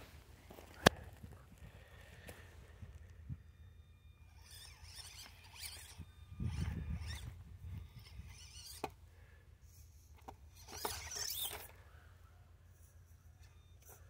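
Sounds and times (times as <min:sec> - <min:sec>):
electric toy car motor whining: 0:02.2 - 0:14.0.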